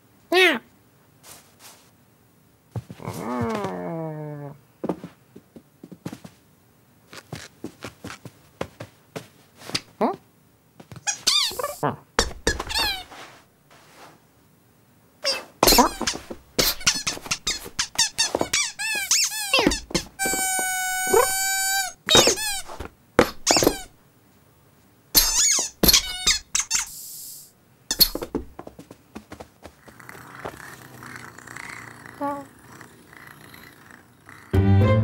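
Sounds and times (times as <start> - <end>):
squeaky toy squeaking: 11.1 - 13.1, 15.2 - 23.9, 25.2 - 27.0.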